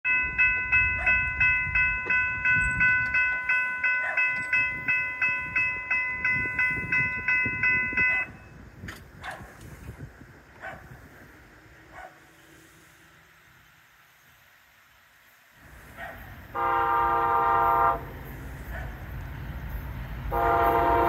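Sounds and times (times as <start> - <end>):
electronic railroad warning bell: 0.0 - 8.7, 19.6 - 21.0.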